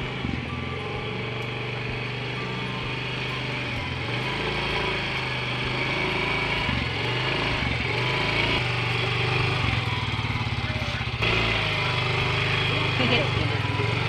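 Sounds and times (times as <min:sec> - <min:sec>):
scooter engine running: 0:00.0 - 0:14.0.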